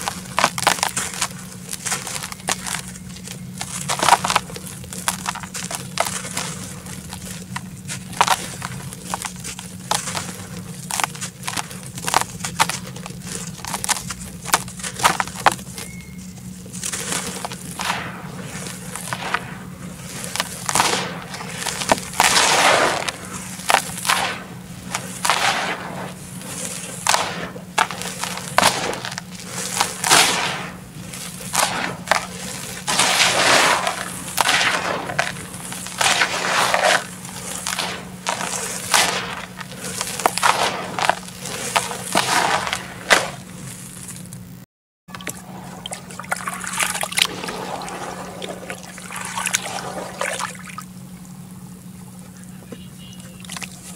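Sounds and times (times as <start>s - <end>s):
hands crunching dry dirt: 0.0s - 53.9s
hands squelching in watery mud: 16.5s - 44.2s, 45.1s - 50.9s.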